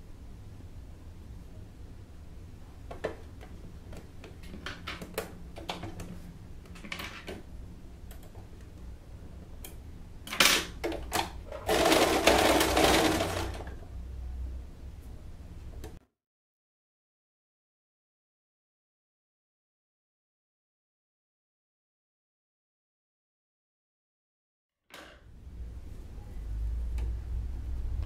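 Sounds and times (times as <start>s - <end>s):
sewing machine stitching: 11.5s - 13.8s.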